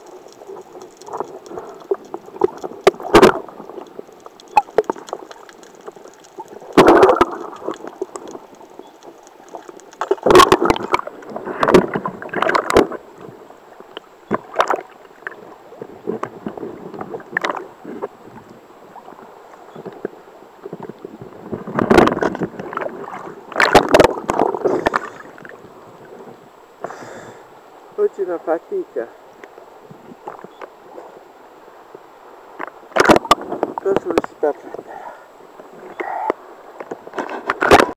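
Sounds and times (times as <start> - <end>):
steady water wash: 0.0 - 37.9
water splashing loudly: 6.8 - 7.8, 10.0 - 12.9, 22.7 - 25.3.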